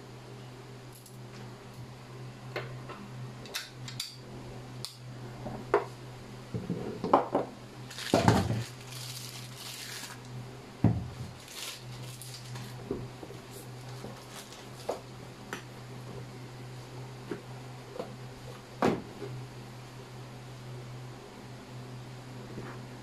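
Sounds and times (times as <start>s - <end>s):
steady low hum: 0.0s - 23.0s
plastic bag rustling: 7.9s - 10.3s, 11.1s - 15.1s.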